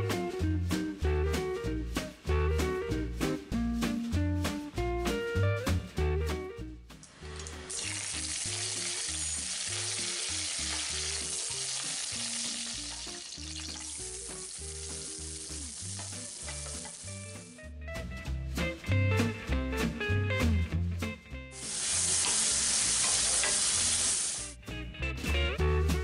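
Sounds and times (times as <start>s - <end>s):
mustard seeds spluttering: 7.0s - 17.6s, 21.6s - 24.5s
hot oil sizzling in a pan: 7.0s - 17.7s, 21.5s - 24.6s.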